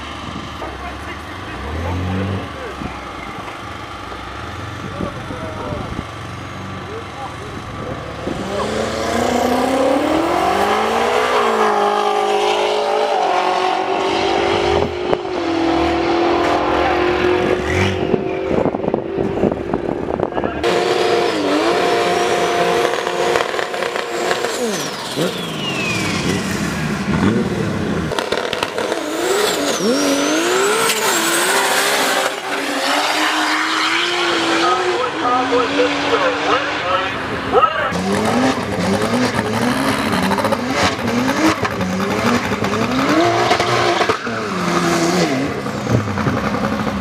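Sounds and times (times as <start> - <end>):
car engines revving: 0.0 - 47.0
high squeal: 24.6 - 26.6.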